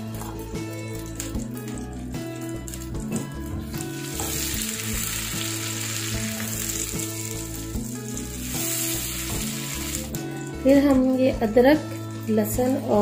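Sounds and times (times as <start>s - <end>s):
soft background music: 0.0s - 13.0s
onion sizzling in hot oil: 2.4s - 10.3s.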